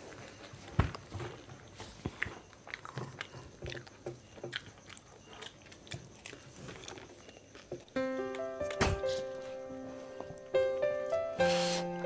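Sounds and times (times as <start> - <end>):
crisp shells crunched and chewed: 1.9 - 9.4.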